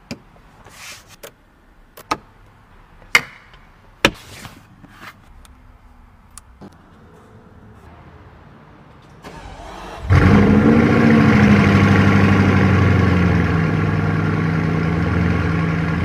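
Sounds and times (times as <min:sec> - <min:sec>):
car engine starting and idling: 0:08.8 - 0:16.0.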